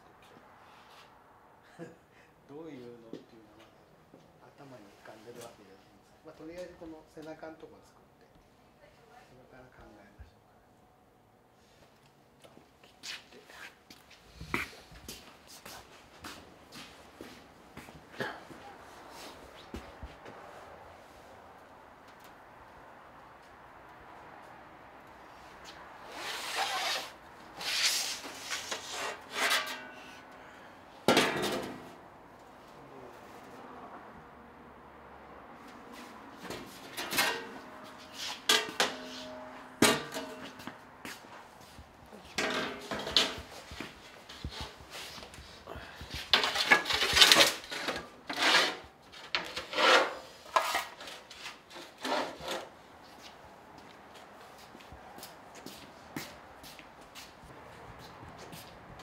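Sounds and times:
metal sheet scraping against rack: 26.1s - 30.2s, 36.0s - 40.7s, 42.4s - 45.1s, 46.2s - 52.7s.

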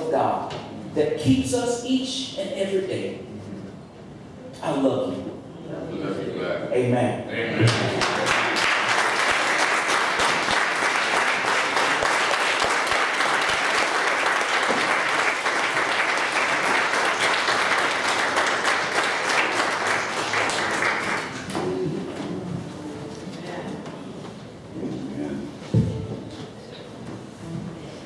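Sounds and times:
congregation clapping: 7.6s - 22.1s.

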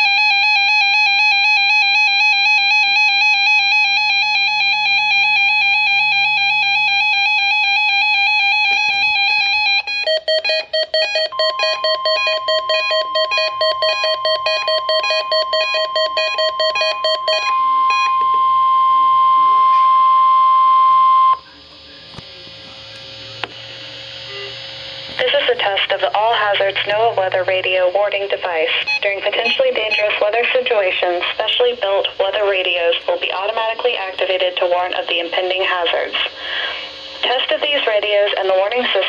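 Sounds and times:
steady alarm tone: 0.0s - 39.0s
lower pulsing beep: 9.9s - 22.0s, 24.2s - 24.6s, 28.9s - 30.3s
rapidly pulsing electronic beep: 9.9s - 22.1s, 28.3s - 31.6s.

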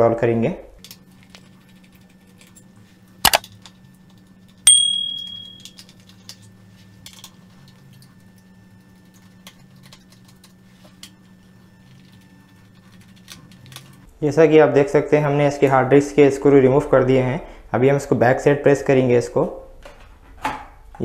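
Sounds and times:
metallic screw clink: 4.7s - 5.8s.

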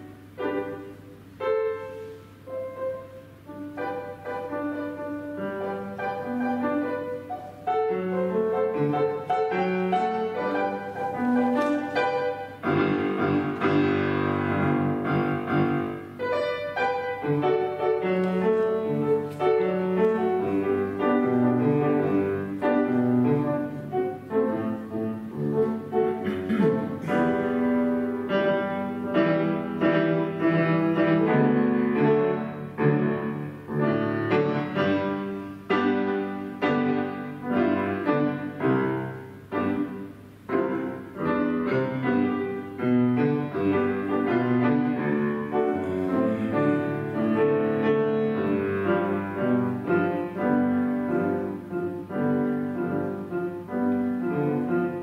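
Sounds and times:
solo piano: 0.0s - 55.0s.

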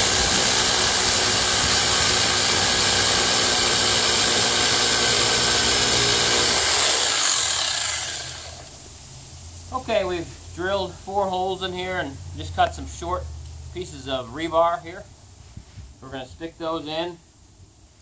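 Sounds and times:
electric drill boring into concrete: 0.0s - 8.8s.

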